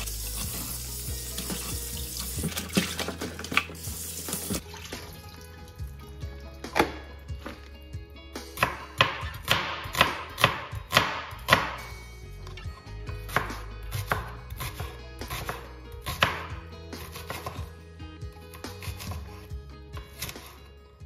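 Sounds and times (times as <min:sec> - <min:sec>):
knife chopping onion on board: 0:08.6 - 0:11.8, 0:13.3 - 0:17.7, 0:18.5 - 0:19.4.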